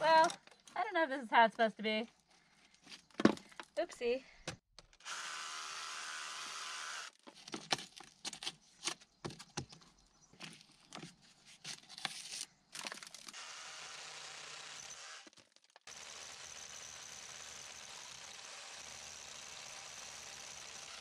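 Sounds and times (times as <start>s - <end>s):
drill boring into stone: 5.0s - 7.2s, 13.3s - 21.0s.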